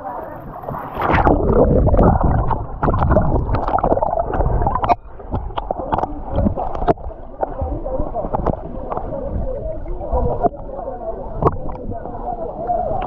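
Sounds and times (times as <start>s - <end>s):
underwater rushing and gurgling: 0.0s - 13.0s
bubble clicks: 1.0s - 9.1s, 11.4s - 11.9s.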